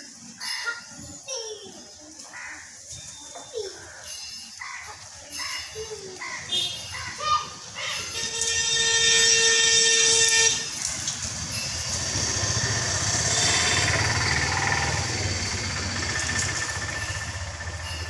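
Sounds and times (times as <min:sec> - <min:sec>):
vehicle horn long note: 0:08.2 - 0:10.8, 0:13.3 - 0:14.3
motor vehicle passing: 0:10.9 - 0:18.0.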